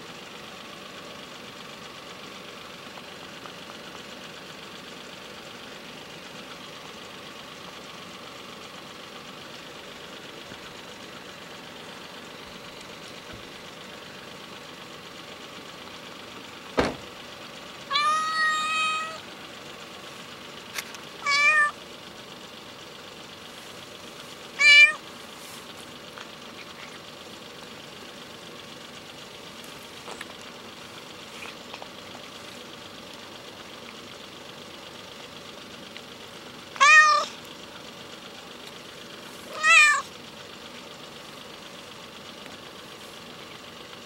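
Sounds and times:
faint background hum: 0.0s - 44.0s
cat meowing: 17.9s - 19.2s, 21.2s - 21.8s, 24.6s - 25.0s, 36.8s - 37.4s, 39.5s - 40.1s.

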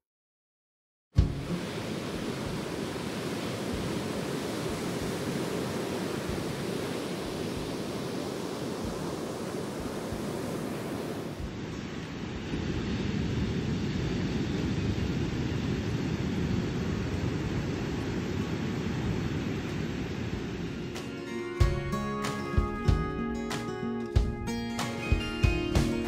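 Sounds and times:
low buffeting thumps: 1.2s - 1.6s
wind rushing on microphone: 1.2s - 20.9s.

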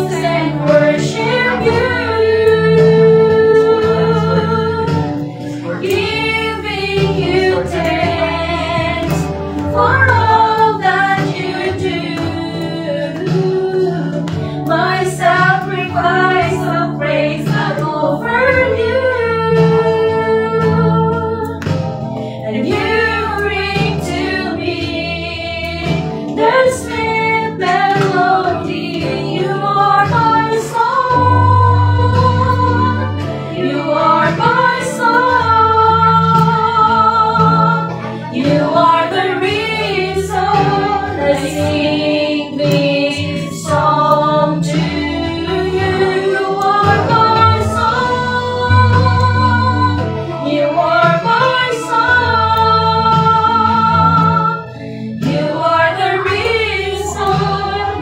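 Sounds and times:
women singing worship song: 0.0s - 58.0s
held low bass notes: 30.9s - 38.4s, 46.8s - 51.4s.

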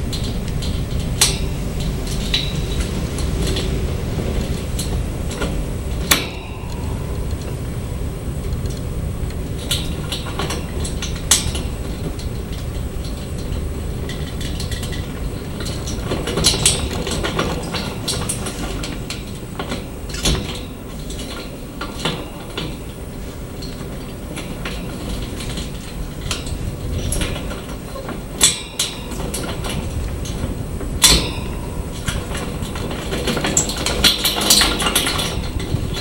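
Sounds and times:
camera dolly rolling on track: 0.0s - 36.0s.

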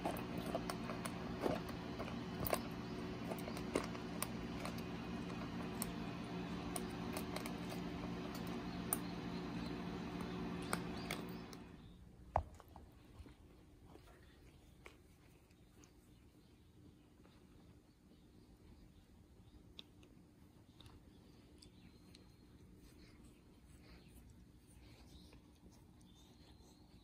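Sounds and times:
steady low hum: 0.0s - 12.3s
kitten crunching dry kibble: 0.0s - 17.8s, 19.6s - 27.0s.

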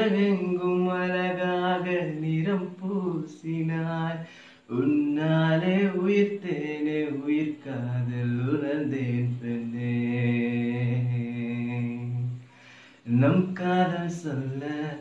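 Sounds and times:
man singing unaccompanied: 0.0s - 15.0s.

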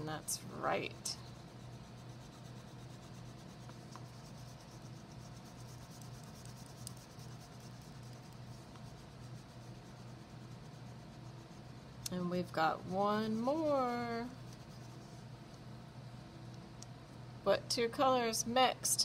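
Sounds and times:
crayon rubbing on paper: 0.8s - 11.8s, 13.0s - 15.2s.

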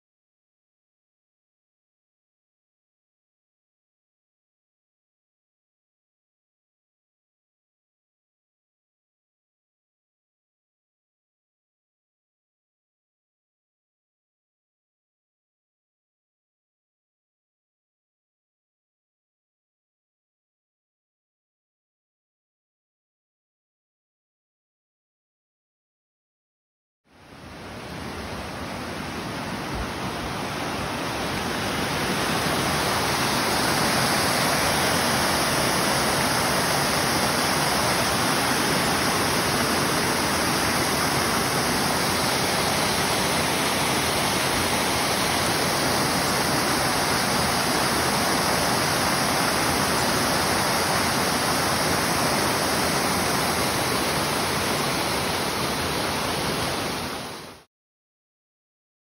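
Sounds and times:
creek water rushing over cascades: 27.2s - 57.7s.

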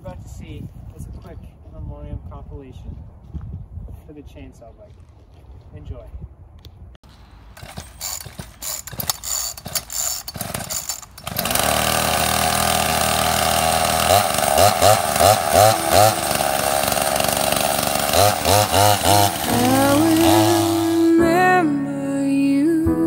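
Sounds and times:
chainsaw engine pull-started: 7.4s - 21.1s.

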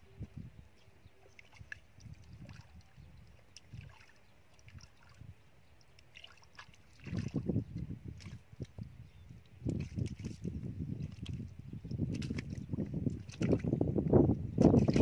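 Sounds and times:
mud squelching and sloshing: 1.3s - 5.3s, 5.9s - 8.8s, 9.4s - 13.9s, 14.6s - 15.0s.

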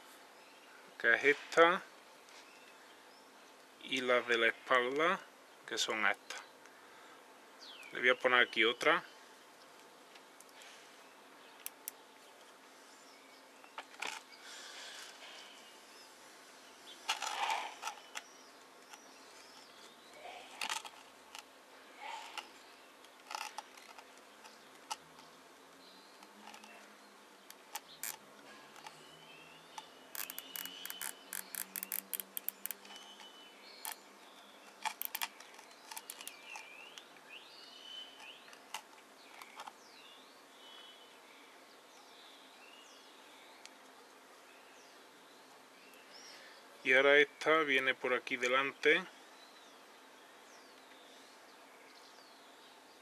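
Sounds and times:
cable tie ratchet clicks: 27.7s - 28.2s, 30.1s - 33.0s, 34.8s - 36.4s.

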